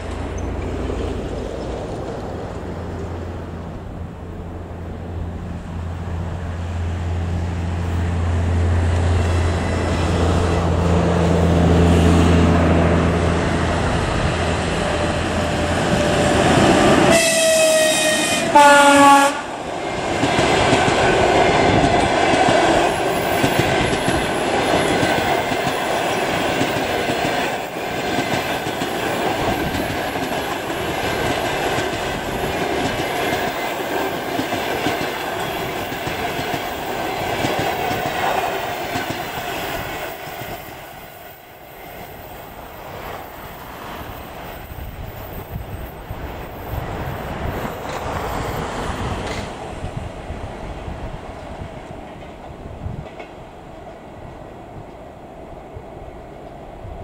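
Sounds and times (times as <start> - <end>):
wheels clacking over rail joints: 0.0 - 3.8, 19.8 - 41.1
train coaches rumbling past: 0.0 - 57.0
two-tone locomotive horn: 14.8 - 19.6.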